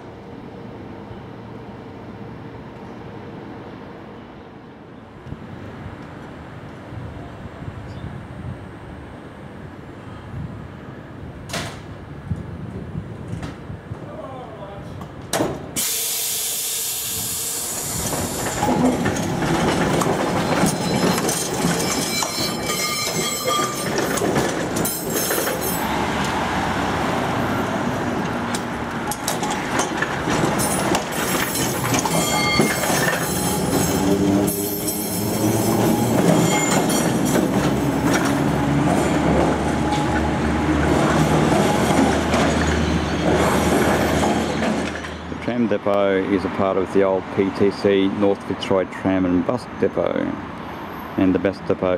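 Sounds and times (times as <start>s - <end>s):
wheels rumbling on rail: 0.0s - 51.9s
tram wheels squealing: 15.8s - 26.3s, 29.0s - 45.4s.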